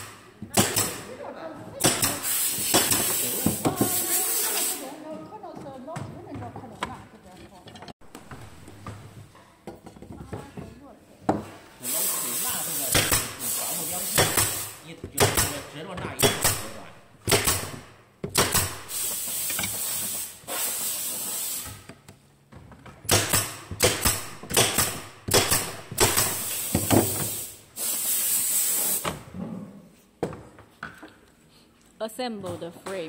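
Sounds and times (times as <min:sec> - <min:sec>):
bursts of hissing: 0:02.0 - 0:05.0, 0:11.8 - 0:14.8, 0:18.8 - 0:21.8, 0:26.2 - 0:29.0.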